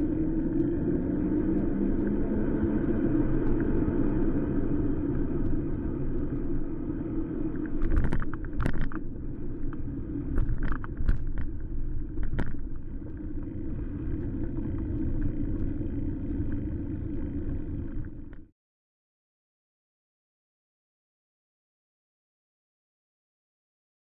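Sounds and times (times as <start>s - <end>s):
bicycle tyre noise: 0.0s - 18.5s.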